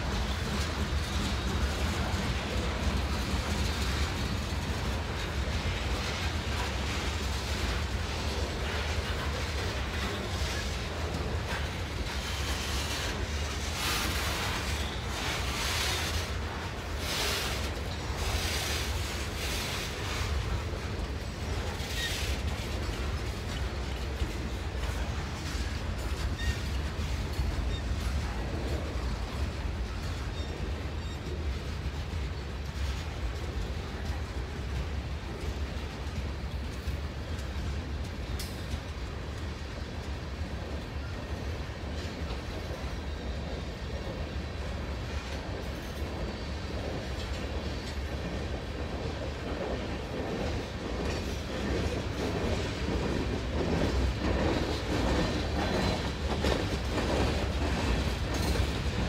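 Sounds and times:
freight train rolling past: 0.0s - 59.0s.

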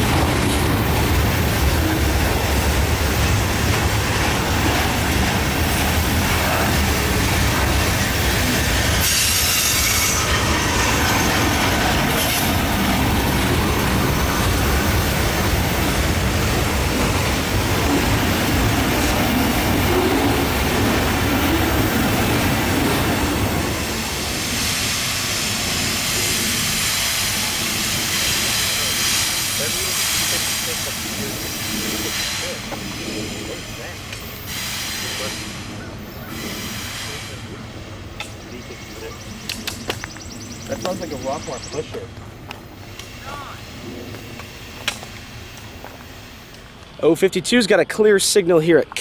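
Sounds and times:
train wheels rumbling and clacking: 0.0s - 49.0s
high wheel squeal: 7.9s - 12.6s.

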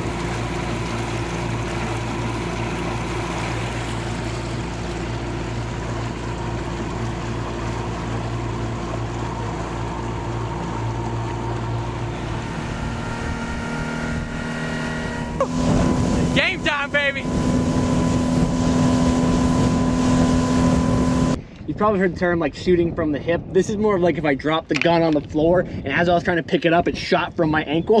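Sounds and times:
outboard motor running: 0.0s - 21.4s
water rushing along hull: 0.0s - 21.4s.

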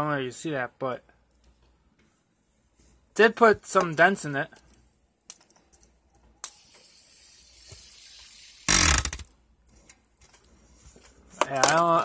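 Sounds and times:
fidget spinner whirring: 6.4s - 9.3s.

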